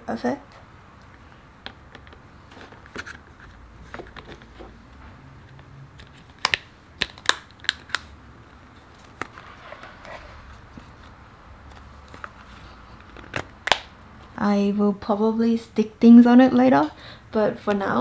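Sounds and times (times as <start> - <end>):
plastic handling and rubbing: 1.6 - 8.1, 8.7 - 13.8.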